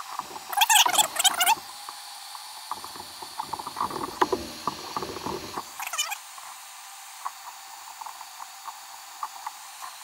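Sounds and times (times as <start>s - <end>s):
heat gun hissing: 0.0s - 10.0s
high squeaking: 0.5s - 1.7s.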